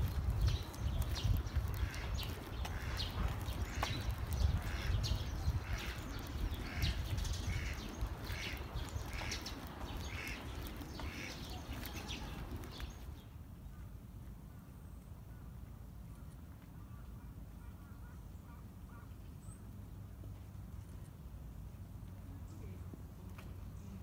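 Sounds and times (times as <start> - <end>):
low outdoor rumble: 0.0 - 24.0
bird calling: 1.7 - 13.0.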